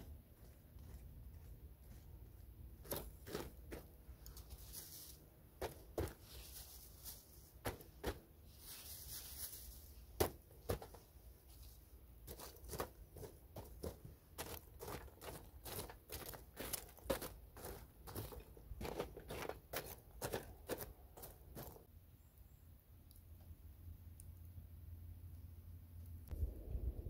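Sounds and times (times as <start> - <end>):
stick raking charcoal embers: 2.8 - 11.2, 12.2 - 21.9.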